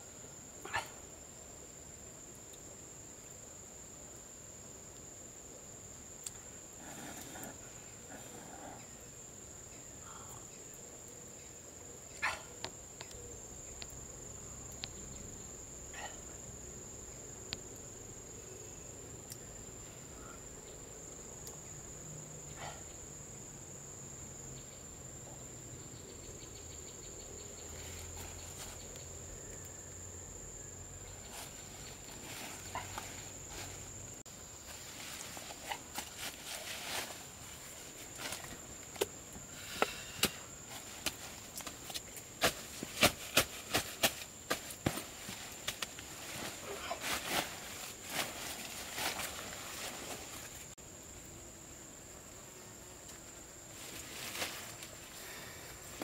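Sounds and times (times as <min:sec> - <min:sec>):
high-pitched insect chorus: 0:00.0 - 0:56.0.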